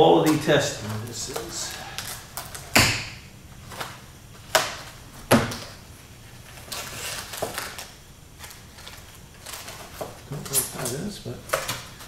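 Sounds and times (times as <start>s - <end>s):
packaging rustling: 6.3s - 12.0s.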